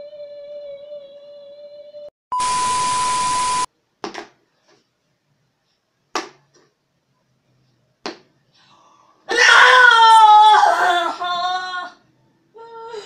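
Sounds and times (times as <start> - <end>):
steady beep tone: 2.3 - 3.7.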